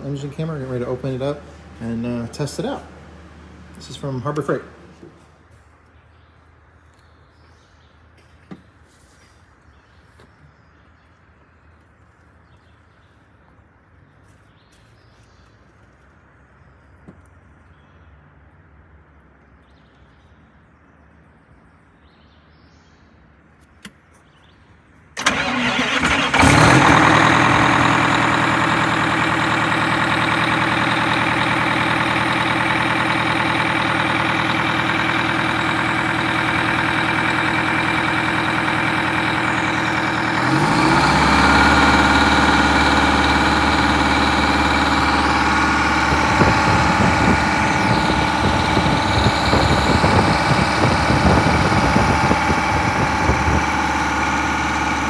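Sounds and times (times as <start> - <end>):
bus engine starting and idling: 0.0 - 5.7, 25.0 - 55.0.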